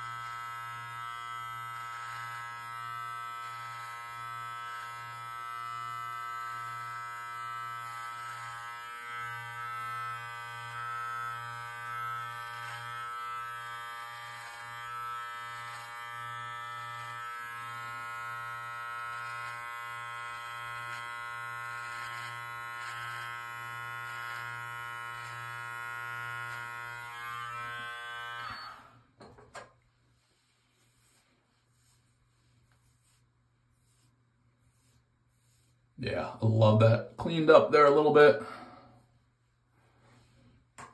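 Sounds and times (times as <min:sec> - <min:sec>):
beard trimmer buzzing: 0:00.0 - 0:29.0.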